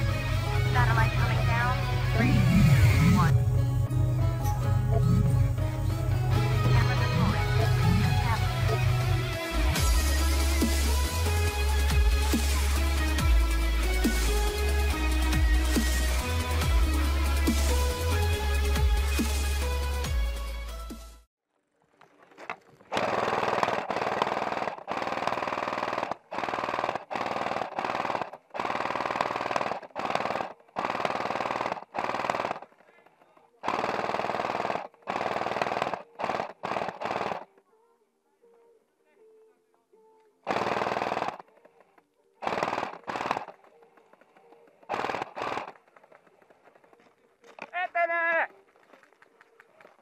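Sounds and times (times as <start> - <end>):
airsoft gun firing full auto: 22.9 - 32.7, 33.6 - 37.5, 40.5 - 41.6, 42.4 - 43.7, 44.8 - 45.9.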